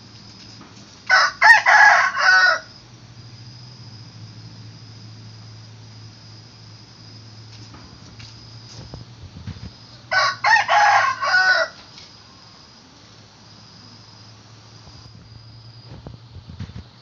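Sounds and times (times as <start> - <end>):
rooster crowing: 1.1 - 2.8, 9.9 - 11.9.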